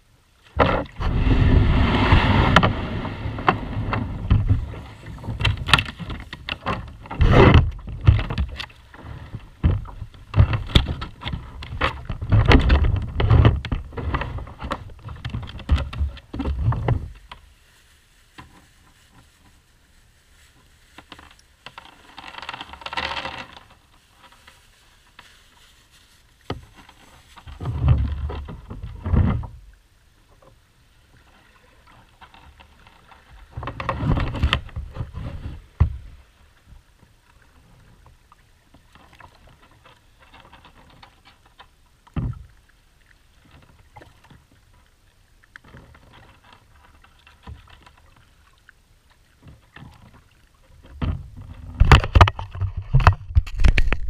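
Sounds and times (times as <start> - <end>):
low hiss: 13.6 - 51.4.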